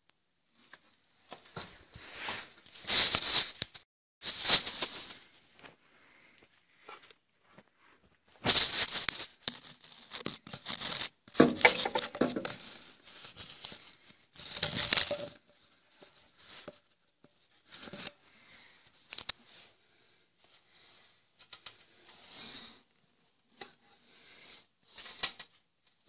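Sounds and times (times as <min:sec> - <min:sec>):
scraping handling noise: 0:08.4 - 0:18.1.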